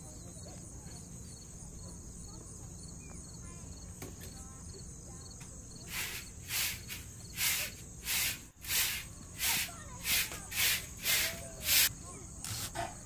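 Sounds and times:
broom sweeping a floor: 0:05.8 - 0:13.0.

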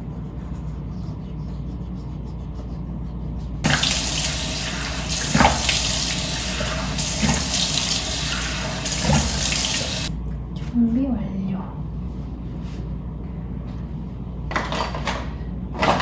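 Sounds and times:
sink tap running: 0:03.6 - 0:10.1
water splashing: 0:03.6 - 0:10.1.

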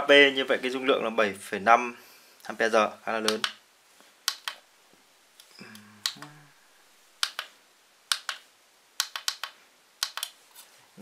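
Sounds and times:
push buttons clicking: 0:03.2 - 0:03.6.

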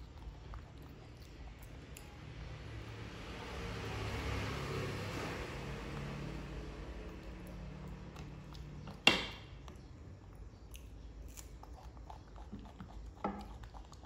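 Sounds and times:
monkey chewing food: 0:00.0 - 0:02.0, 0:11.3 - 0:14.0.

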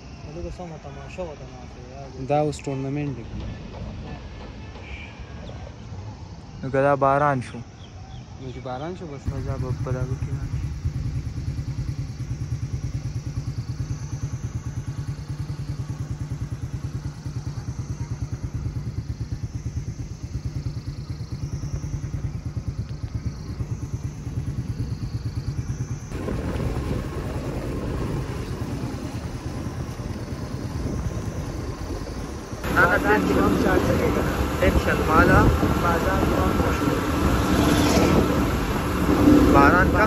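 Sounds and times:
motorcycle engine running: 0:09.3 - 0:40.0
rush of wind and road noise: 0:09.3 - 0:40.0.

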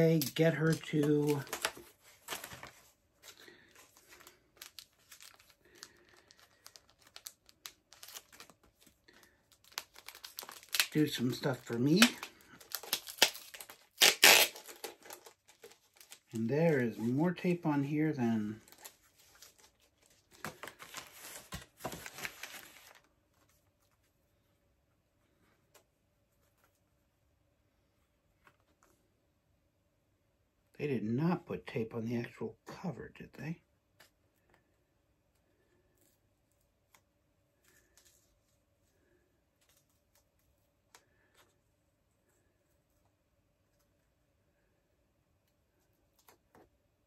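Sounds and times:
plastic sleeve crinkling: 0:00.0 - 0:23.9
tape peeling: 0:09.6 - 0:16.2.

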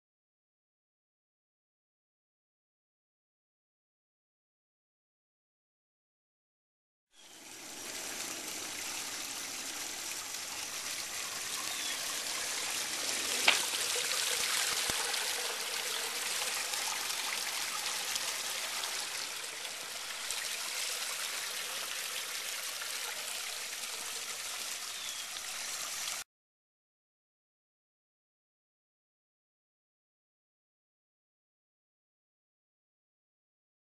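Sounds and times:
water trickling and splashing: 0:07.2 - 0:26.2.

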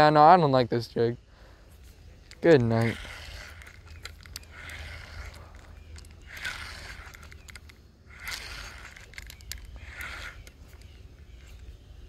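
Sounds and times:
reel scraping whir: 0:01.8 - 0:12.0
fishing reel clicking: 0:02.2 - 0:11.8.

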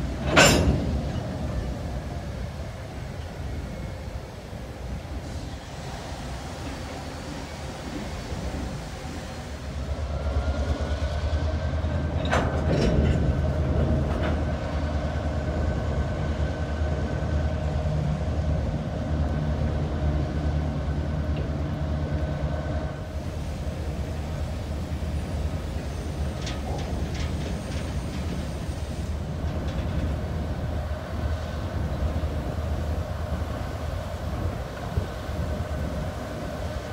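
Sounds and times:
metallic clanks of train wheels: 0:00.0 - 0:02.3, 0:06.5 - 0:14.8, 0:23.9 - 0:36.9
freight train low rumble: 0:00.0 - 0:36.9.

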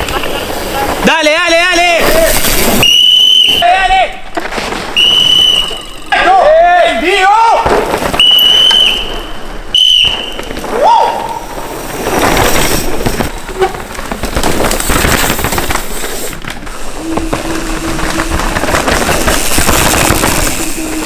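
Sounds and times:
bike parts chattering: 0:00.0 - 0:10.8, 0:11.4 - 0:21.0
mountain bikes rattling over dirt: 0:00.0 - 0:21.0
short shrill whistle: 0:02.8 - 0:03.6, 0:05.0 - 0:06.0, 0:08.2 - 0:11.3.

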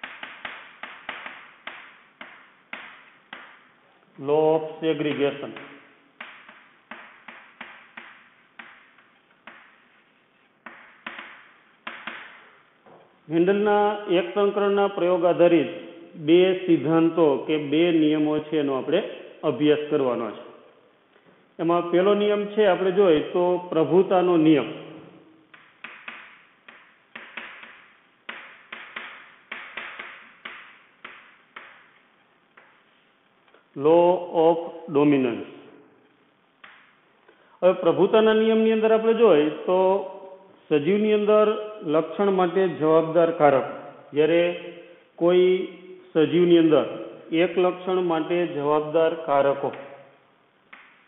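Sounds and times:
chalk tapping and scraping on chalkboard: 0:00.0 - 0:03.7, 0:05.1 - 0:12.6, 0:25.5 - 0:33.1.

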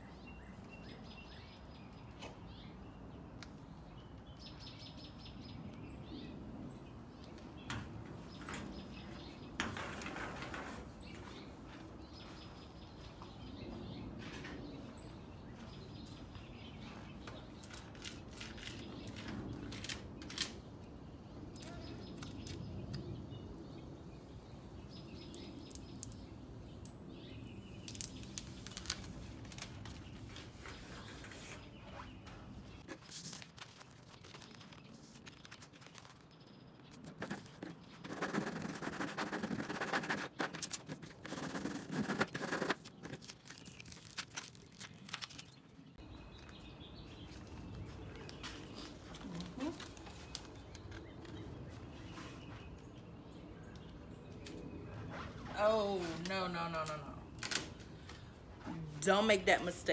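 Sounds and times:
outdoor background hum: 0:00.0 - 0:59.9
small birds chirping: 0:00.0 - 0:59.9
rustles: 0:07.2 - 0:20.8, 0:27.4 - 0:59.7.

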